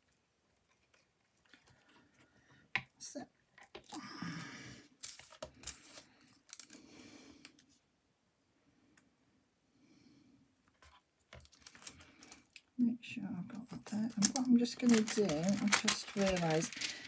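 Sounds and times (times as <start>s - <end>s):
paper rustling and clicking: 10.8s - 12.4s, 13.8s - 17.0s.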